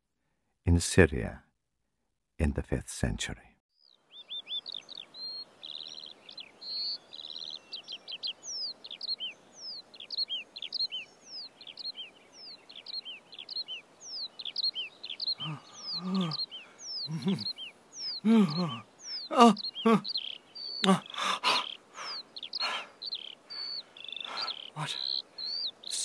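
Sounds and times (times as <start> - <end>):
birds chirping and singing: 3.8 - 26.0
man making short low sounds: 15.4 - 16.4, 17.1 - 17.5, 18.2 - 20.0, 20.8 - 21.6, 24.8 - 25.0.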